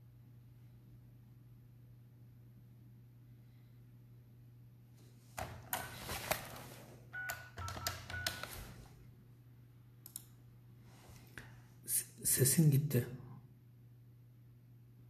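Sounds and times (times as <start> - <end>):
clicks and taps: 7.2 - 8.6.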